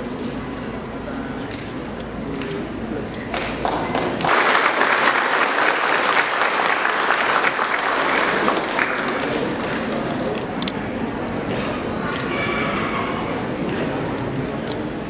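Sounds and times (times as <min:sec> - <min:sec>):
crowd applauding: 0:03.4 - 0:10.2.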